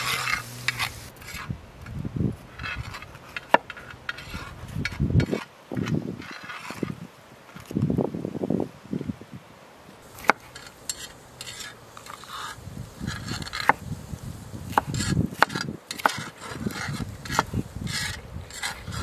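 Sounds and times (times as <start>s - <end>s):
knife slicing pepper: 0.0s - 1.1s, 14.6s - 19.0s.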